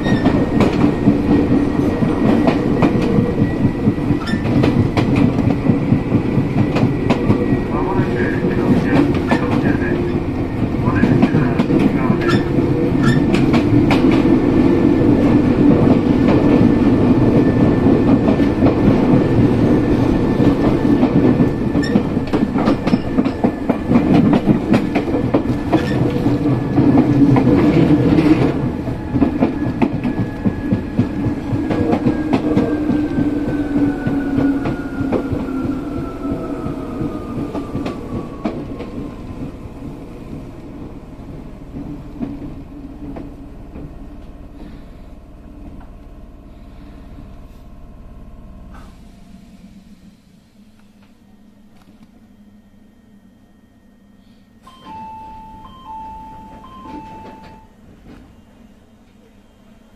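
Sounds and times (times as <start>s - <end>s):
rail joint clicks: 0.0s - 44.7s, 45.6s - 46.2s, 48.6s - 49.2s, 54.6s - 58.4s
train running rumble: 0.0s - 52.8s.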